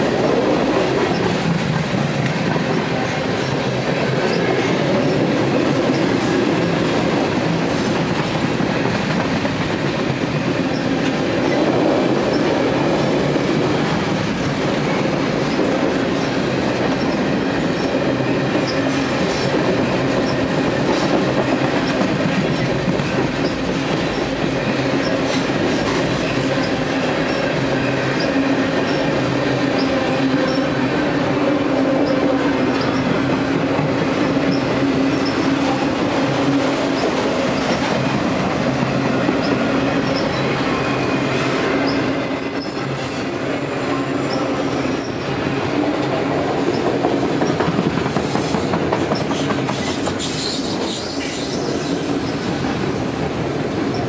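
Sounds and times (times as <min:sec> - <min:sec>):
freight train wheels rumbling: 0:00.0 - 0:54.0
wheels clicking on rails: 0:00.0 - 0:54.0.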